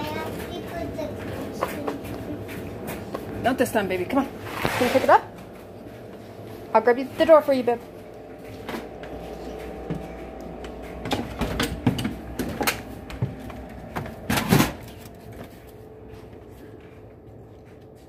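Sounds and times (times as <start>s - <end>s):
steady hum: 0.0s - 18.0s
doors knocking and clattering: 8.5s - 15.5s.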